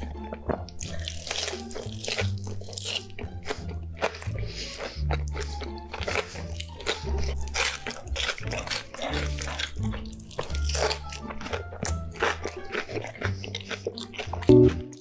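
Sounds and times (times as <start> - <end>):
man chewing and smacking: 0.0 - 15.0
background music with bass line: 14.4 - 15.0.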